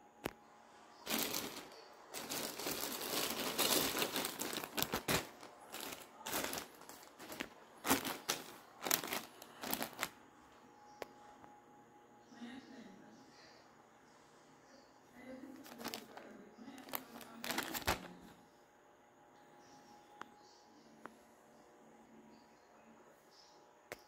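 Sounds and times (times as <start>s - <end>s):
plastic bag crinkles: 1.0s - 10.2s, 15.5s - 18.3s
plastic mailer bag crinkling: 1.0s - 10.2s, 15.5s - 18.3s.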